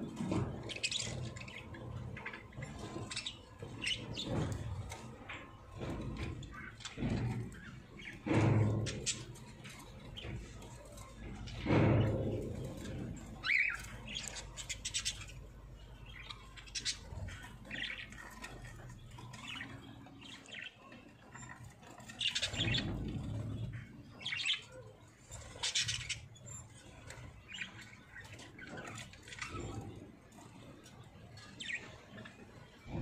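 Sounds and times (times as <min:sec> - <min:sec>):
budgerigars chirping: 0:00.3 - 0:04.5, 0:11.4 - 0:24.8.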